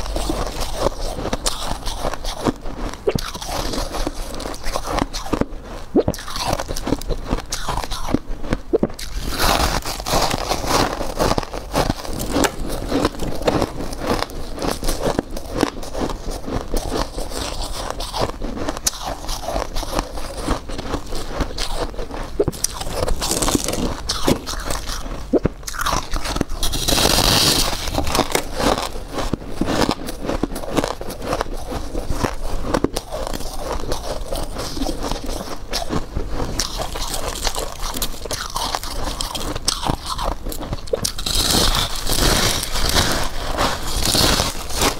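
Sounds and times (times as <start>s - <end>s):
crunching ice chunks: 25.6s - 44.9s.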